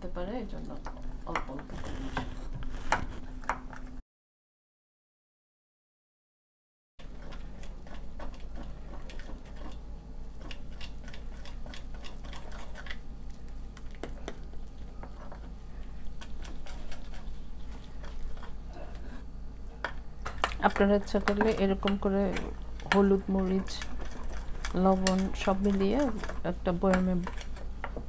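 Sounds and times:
low steady hum: 0.0 - 4.0, 7.0 - 28.0
metal spoon stirring batter: 7.0 - 18.6, 19.7 - 28.0.

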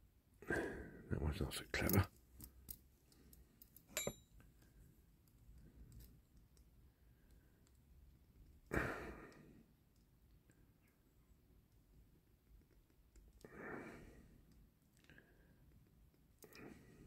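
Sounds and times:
person sighing: 8.7 - 9.4.

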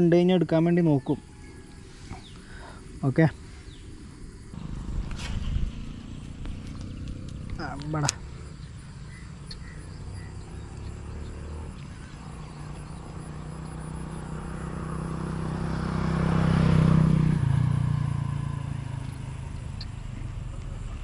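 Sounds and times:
vehicle passing by: 4.5 - 21.0.

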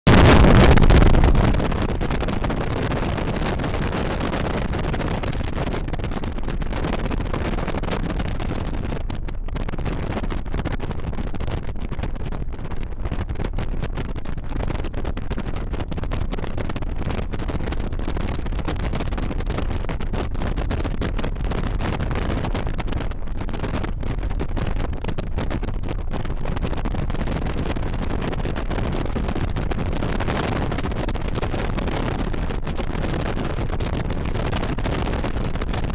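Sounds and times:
wind rush on microphone: 0.0 - 35.9.

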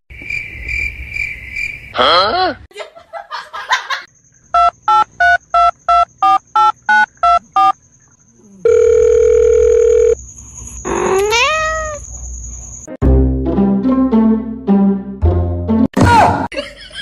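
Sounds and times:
steady phone tone: 8.6 - 10.2
cat meowing: 10.9 - 12.0.

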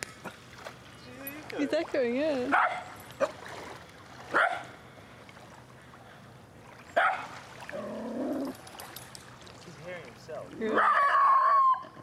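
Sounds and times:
dog barking: 2.5 - 3.4, 4.3 - 4.7, 7.0 - 7.3.

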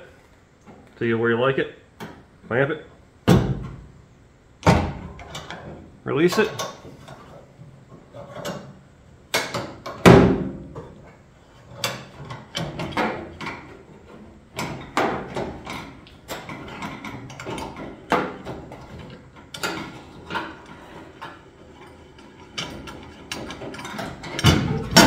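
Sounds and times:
heavy metal thunk: 3.2 - 3.9, 4.6 - 5.2, 10.0 - 10.9, 24.3 - 25.0.

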